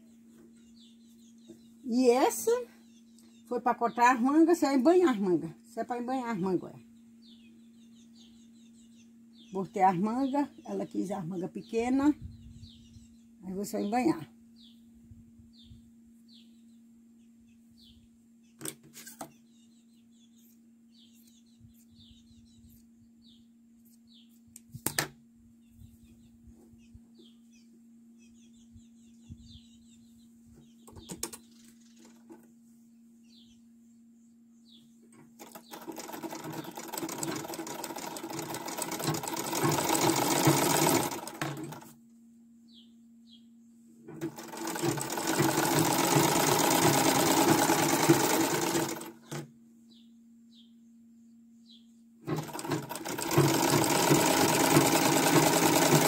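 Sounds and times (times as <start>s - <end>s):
small bird chirping: 0.0s - 4.2s, 6.7s - 14.0s, 14.6s - 24.5s, 25.6s - 41.8s, 42.6s - 56.0s
sewing machine stitching: 35.4s - 41.9s, 44.2s - 49.5s, 52.2s - 56.0s.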